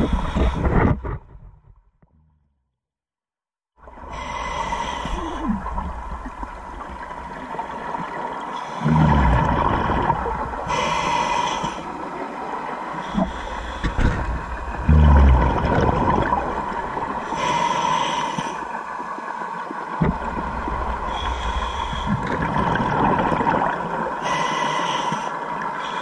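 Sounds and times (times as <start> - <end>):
underwater hum: 0.0 - 2.4, 3.8 - 26.0
regulator hissing inhale: 4.1 - 5.5, 10.7 - 11.9, 13.0 - 14.2, 17.2 - 18.7, 21.1 - 22.3, 24.2 - 26.0
exhaust bubbles: 8.8 - 10.6, 14.8 - 17.1, 22.1 - 23.9.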